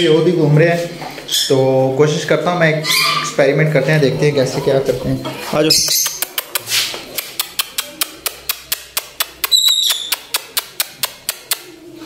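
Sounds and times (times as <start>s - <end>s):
high bird chirp: 5.6s - 6.2s, 9.5s - 10.4s.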